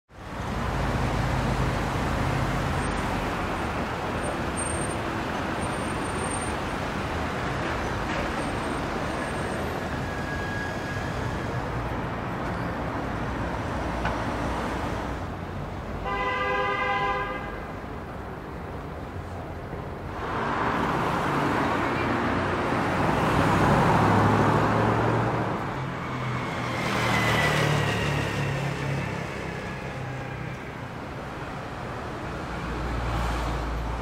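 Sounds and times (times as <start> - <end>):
road traffic: 0.1 - 34.0
vehicle horn: 16.0 - 17.7.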